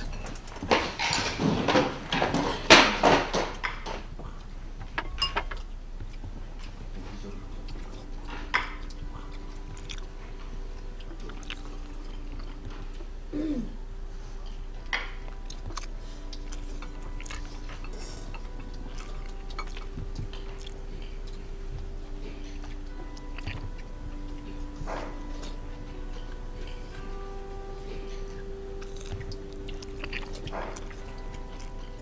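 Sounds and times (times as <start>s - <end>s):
forks clinking on plates: 0.0s - 4.1s, 4.8s - 5.7s, 7.1s - 9.4s
people chewing: 0.0s - 32.0s
soft background music: 0.0s - 32.0s.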